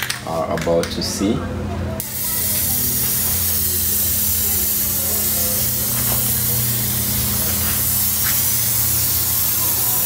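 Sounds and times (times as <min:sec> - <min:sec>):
aerosol can spraying: 0:02.0 - 0:10.0.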